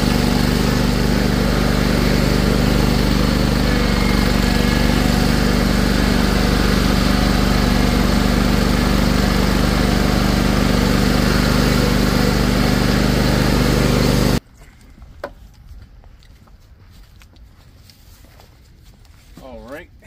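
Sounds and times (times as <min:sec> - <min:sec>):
mower engine running: 0:00.0 - 0:14.4.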